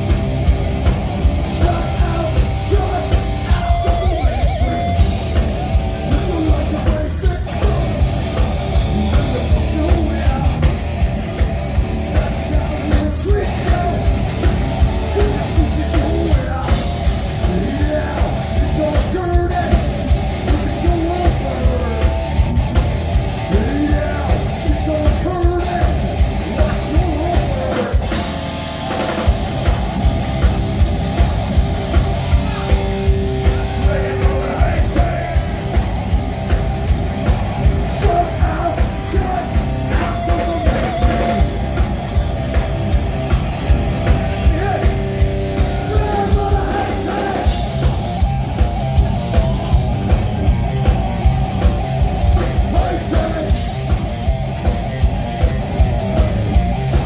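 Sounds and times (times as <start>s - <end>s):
distorted electric guitar: 0.0s - 57.0s
pounding drum kit: 0.0s - 57.0s
shouted sung vocals: 1.4s - 8.2s, 11.9s - 22.2s, 30.9s - 42.2s, 43.6s - 48.1s, 49.0s - 53.7s.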